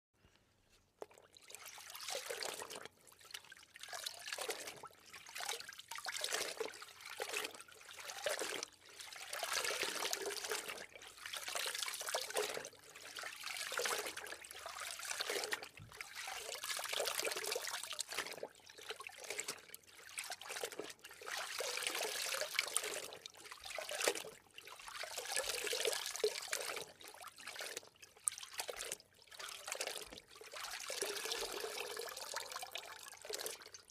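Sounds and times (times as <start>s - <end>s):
water splashing and sloshing: 1.0s - 33.9s.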